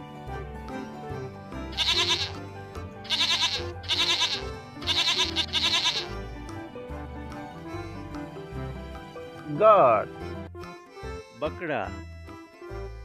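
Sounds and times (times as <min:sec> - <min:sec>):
background music: 0:00.0 - 0:13.0
goat bleating: 0:01.7 - 0:02.4, 0:03.1 - 0:06.2.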